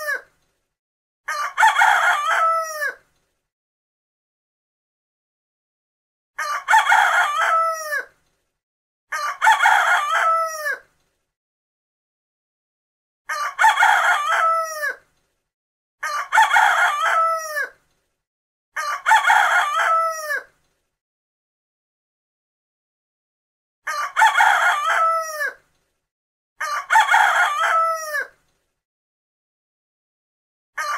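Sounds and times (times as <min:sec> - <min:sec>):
rooster crowing: 0:01.3 - 0:03.0, 0:06.4 - 0:08.1, 0:09.1 - 0:10.8, 0:13.3 - 0:15.0, 0:16.0 - 0:17.8, 0:18.8 - 0:20.5, 0:23.9 - 0:25.6, 0:26.6 - 0:28.4.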